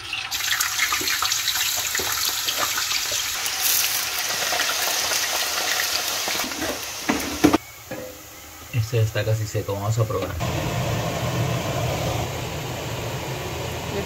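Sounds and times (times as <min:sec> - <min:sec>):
potatoes sizzling in oil: 0:00.0 - 0:10.1.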